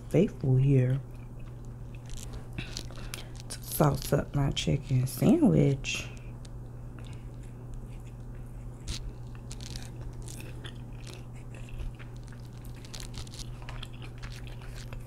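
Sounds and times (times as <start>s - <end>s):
steady low hum: 0.0s - 15.0s
plastic cup crinkling: 8.8s - 15.0s.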